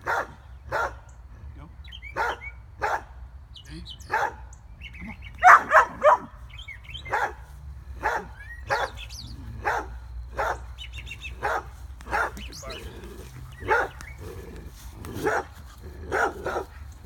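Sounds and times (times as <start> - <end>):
dog barking: 0.0 - 1.0, 2.1 - 3.1, 4.1 - 4.4, 5.4 - 6.4, 7.0 - 7.4, 8.0 - 10.7, 11.4 - 14.2, 15.1 - 16.9.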